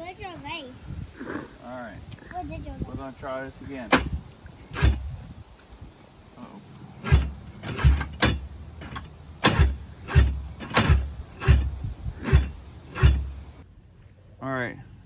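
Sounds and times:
engine cranking without starting: 3.9s - 5.1s, 7.0s - 13.6s.

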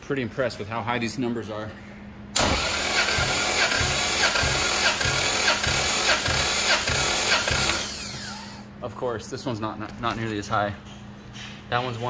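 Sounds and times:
engine starter cranking whir: 2.4s - 8.6s.

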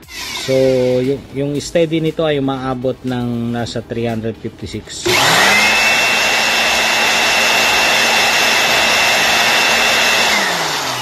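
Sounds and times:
electric blower whining: 0.0s - 1.1s, 5.0s - 11.0s.

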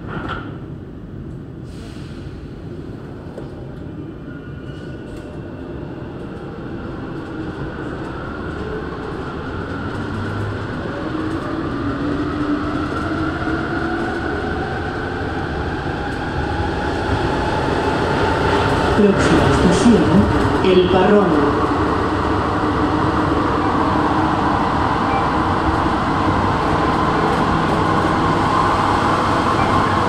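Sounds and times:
train running noise: 6.2s - 30.0s
metro train motor whine: 9.3s - 30.0s.

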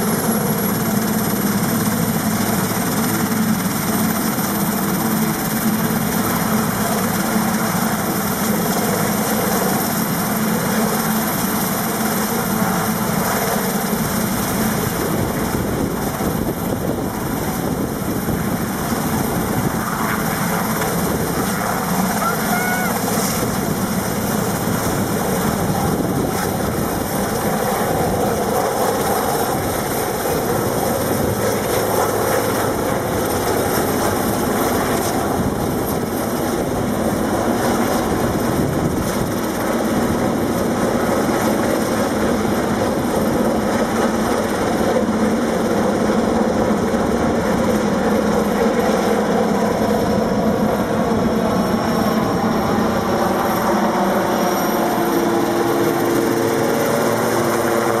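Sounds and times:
helicopter rotor and turbine noise: 0.0s - 58.0s
high turbine whine: 0.0s - 58.0s.

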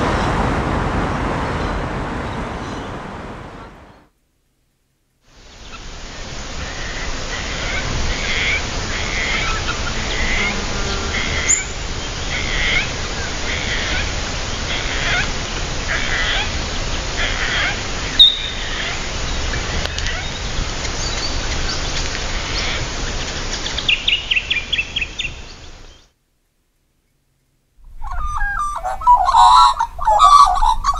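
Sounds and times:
steady background noise: 5.3s - 30.9s
birds calling: 5.5s - 26.0s, 27.9s - 30.9s
rapid bird notes: 17.2s - 21.6s
sharp bird chirp: 18.1s - 19.0s.

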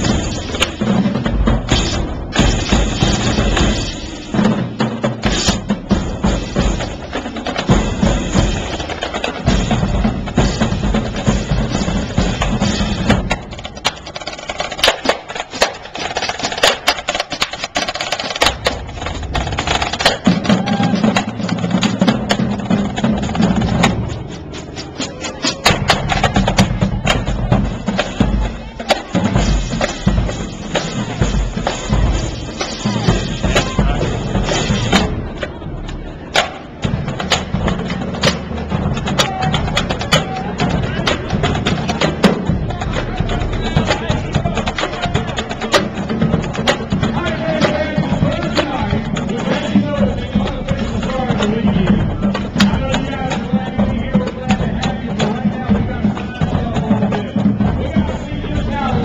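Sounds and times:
marching drum line: 0.0s - 59.0s
snare drum rolls: 0.0s - 59.0s.

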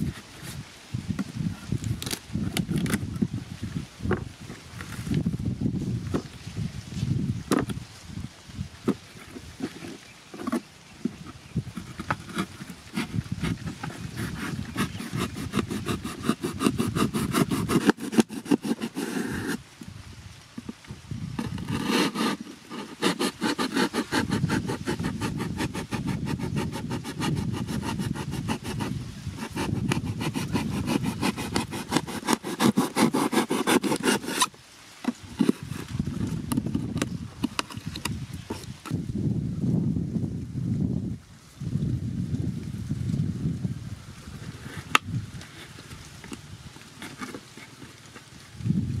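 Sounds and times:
cardboard scrapes and clicks: 0.0s - 0.6s, 1.2s - 3.2s, 7.5s - 7.8s, 8.8s - 19.6s, 20.6s - 20.8s, 21.4s - 39.0s, 44.4s - 48.3s
knife sawing through cardboard: 8.9s - 19.6s, 21.4s - 34.5s, 35.1s - 38.8s, 46.9s - 48.0s.

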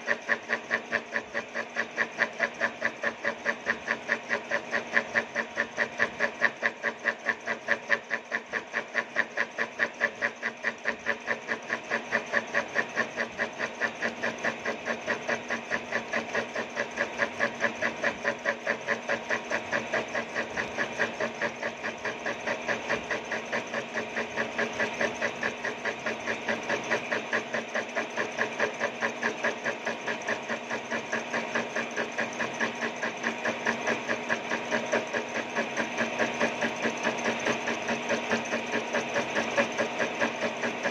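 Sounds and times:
machine running hum: 0.0s - 40.9s.

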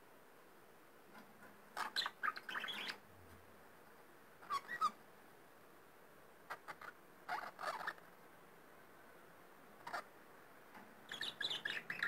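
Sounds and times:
budgerigar chirping: 1.8s - 3.0s, 4.4s - 5.0s, 6.5s - 8.0s, 9.8s - 10.1s, 11.1s - 12.0s.

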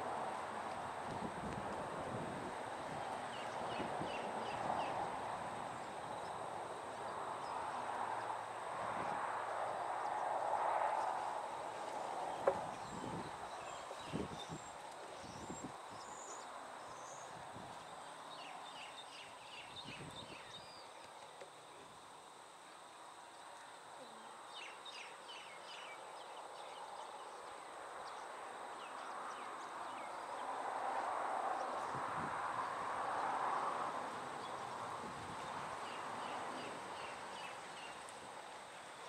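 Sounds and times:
background hiss: 0.0s - 39.0s
small birds chirping: 2.9s - 5.0s, 34.4s - 38.2s.

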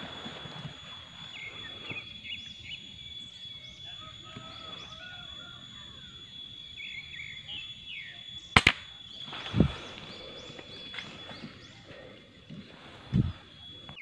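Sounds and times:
small birds chirping: 0.0s - 14.0s
steady high-pitched whine: 0.0s - 14.0s.

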